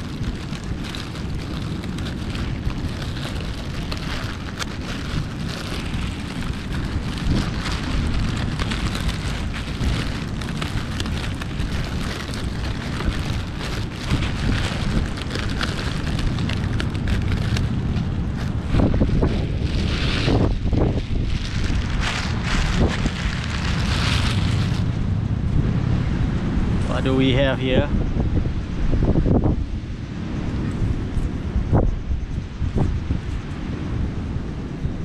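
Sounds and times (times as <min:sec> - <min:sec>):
fabric crackling rustles: 0:00.0 - 0:25.1
wind buffeting microphone: 0:00.0 - 0:35.0.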